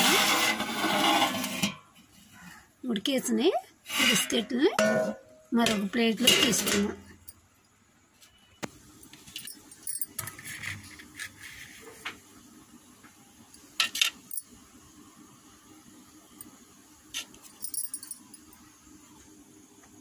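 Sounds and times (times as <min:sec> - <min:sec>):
metal utensil scraping steel plate: 0:00.0 - 0:01.9, 0:03.9 - 0:07.2.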